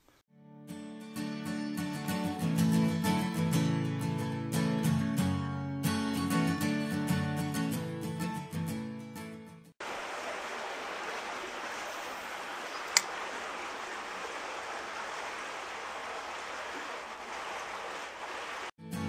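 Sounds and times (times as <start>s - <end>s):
flowing creek water: 9.8s - 18.7s
sharp click: 12.8s - 13.1s.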